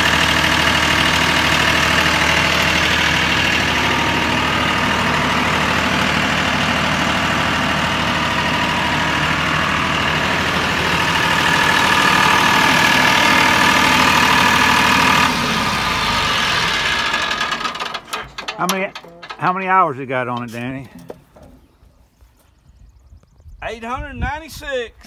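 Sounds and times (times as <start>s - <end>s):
tractor diesel engine idling: 0.0s - 21.6s.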